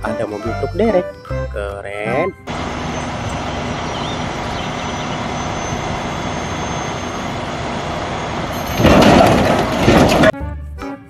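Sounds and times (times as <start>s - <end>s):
diesel engine rumble: 2.3s - 10.4s.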